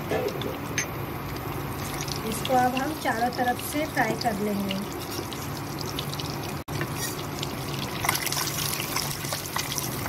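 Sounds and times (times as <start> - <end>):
hot oil sizzling and crackling: 0.4 - 10.0
spatula turning eggs in pan: 1.2 - 10.0.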